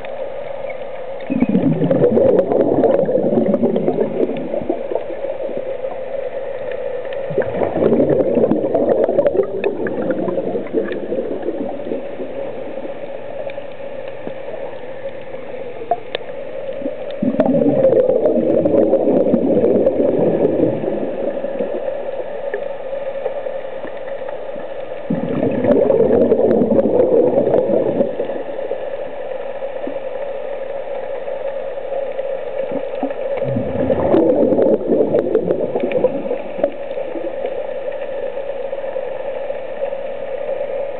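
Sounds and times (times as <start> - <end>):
steady hum: 0.0 - 40.9
breath bubbling from regulator: 0.6 - 22.7, 25.0 - 28.8, 32.1 - 37.9.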